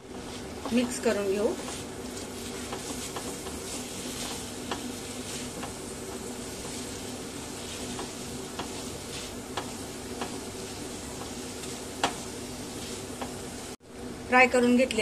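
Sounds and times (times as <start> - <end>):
vegetables sizzling in a pan: 0.0 - 13.8
spatula scraping a pan: 0.2 - 13.5.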